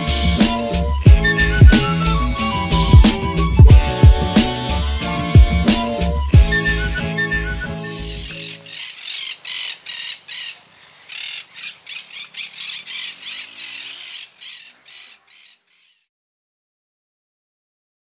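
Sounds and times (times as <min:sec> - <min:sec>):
animal rasping calls: 0:06.5 - 0:16.0.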